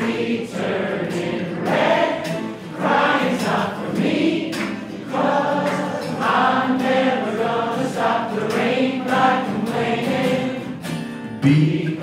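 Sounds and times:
strummed acoustic guitar: 0:00.0 - 0:12.0
man singing: 0:11.4 - 0:12.0.

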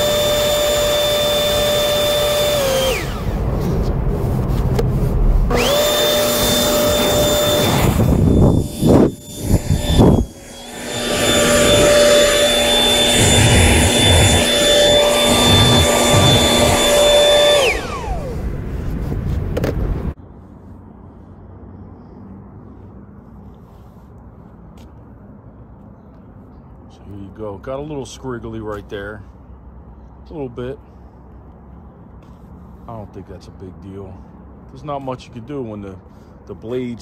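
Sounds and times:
loud rough bursts: 0:00.0 - 0:18.4
leaf blower motor whine: 0:00.0 - 0:18.9
air rushing: 0:02.4 - 0:20.2.

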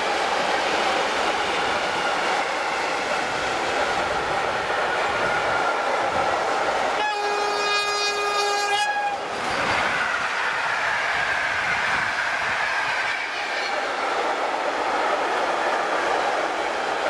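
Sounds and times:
train wheels on rails: 0:00.0 - 0:17.0
locomotive horn blast: 0:07.0 - 0:09.3.

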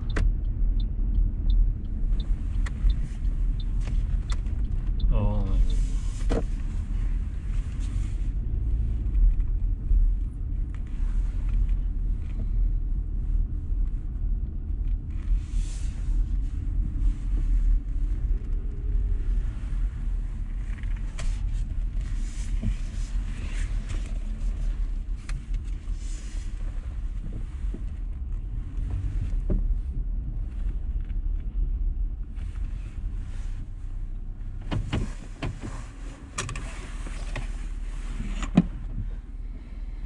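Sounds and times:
car engine and tyre rumble: 0:00.0 - 0:40.0
faint road hiss: 0:15.1 - 0:31.4.

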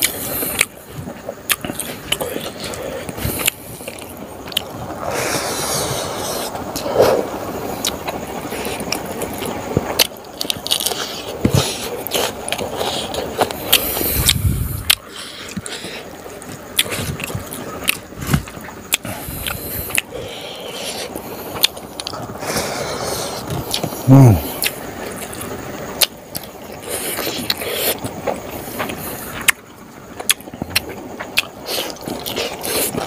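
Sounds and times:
wet chewing and smacking: 0:00.0 - 0:04.8, 0:07.8 - 0:20.1, 0:24.6 - 0:33.0.

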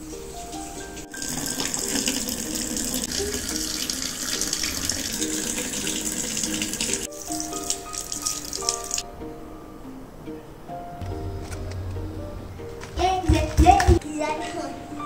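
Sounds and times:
quiet background music: 0:00.0 - 0:15.0
tap water running into sink: 0:00.5 - 0:09.0.

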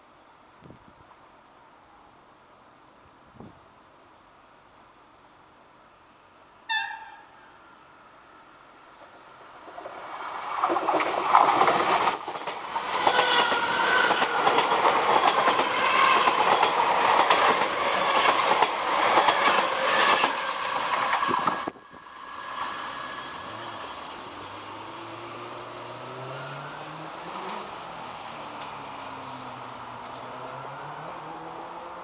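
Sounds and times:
train wheels on rails: 0:08.8 - 0:32.0.

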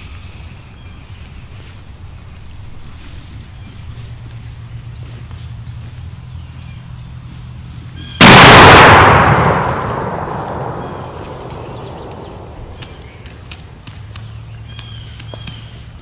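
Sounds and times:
shotgun shot echoing: 0:08.2 - 0:13.4.

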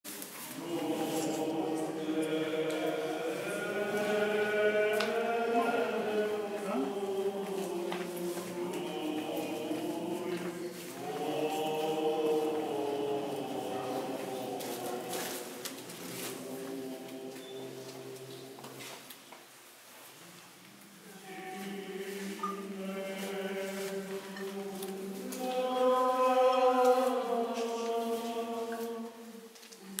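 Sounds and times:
voices chanting long notes: 0:00.4 - 0:18.9, 0:21.1 - 0:29.5.

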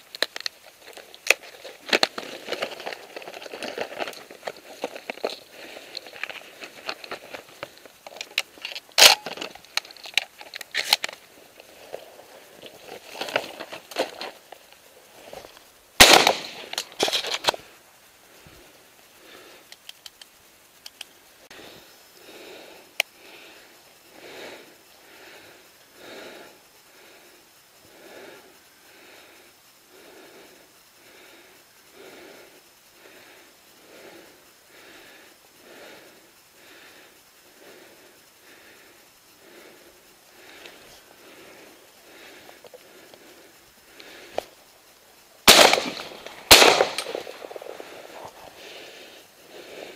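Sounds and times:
leaves and twigs rustling: 0:00.0 - 0:30.0, 0:36.2 - 0:49.9
heavy breathing: 0:00.7 - 0:15.6, 0:17.5 - 0:19.8, 0:21.4 - 0:45.3, 0:45.9 - 0:49.9
twigs cracking sharply: 0:16.0 - 0:17.7, 0:45.4 - 0:48.6.

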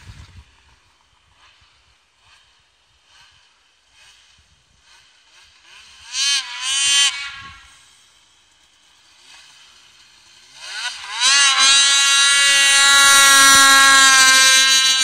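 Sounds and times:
snowmobile engine revving: 0:01.5 - 0:08.1, 0:09.0 - 0:15.0.

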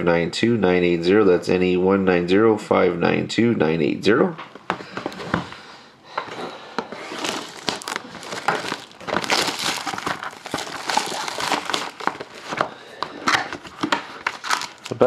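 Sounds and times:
plastic shrink wrap crinkling: 0:06.9 - 0:15.0.

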